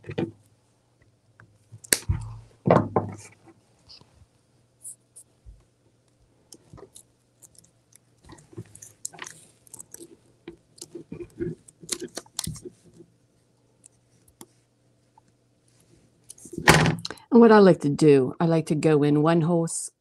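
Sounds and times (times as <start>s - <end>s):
mesh crinkling and rustling: 6.5s - 13.1s.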